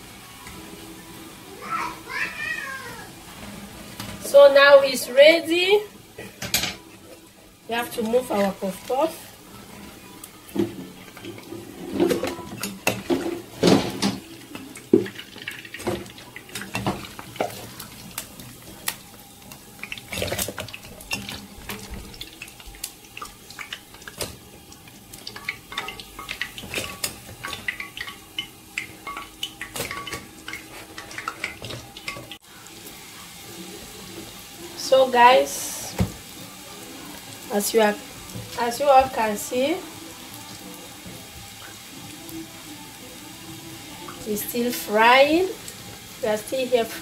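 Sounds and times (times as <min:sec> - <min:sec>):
oil sizzling faintly: 0:00.0 - 0:47.0.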